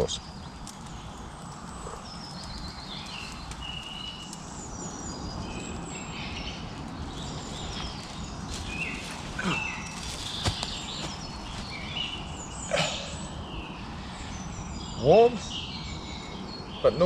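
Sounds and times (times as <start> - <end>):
birds chirping and whistling: 0.0 - 17.0.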